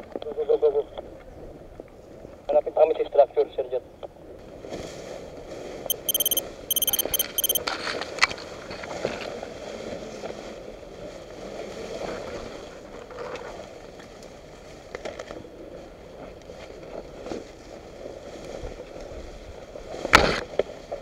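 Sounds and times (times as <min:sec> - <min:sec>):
short high-pitched bursts: 0:05.9 - 0:07.6.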